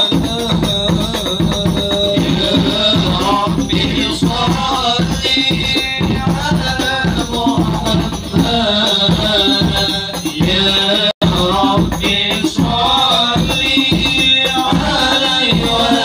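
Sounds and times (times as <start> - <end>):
hand-drum percussion: 0.0 - 16.0
men singing devotional song: 0.0 - 16.0.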